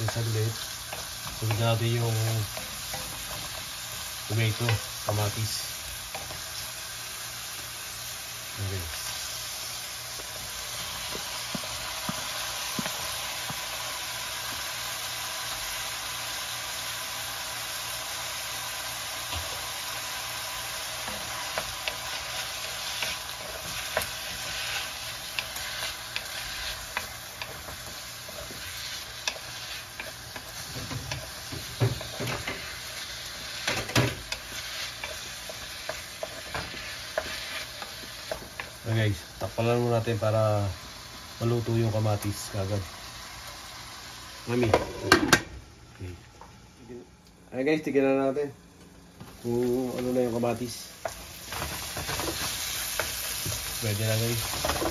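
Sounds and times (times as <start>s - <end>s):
vegetables sizzling in oil: 0.0s - 54.9s.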